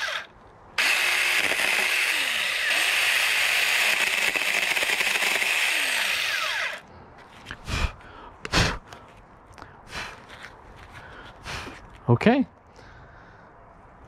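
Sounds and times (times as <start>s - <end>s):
mini chainsaw cutting branch: 0.0s - 6.8s.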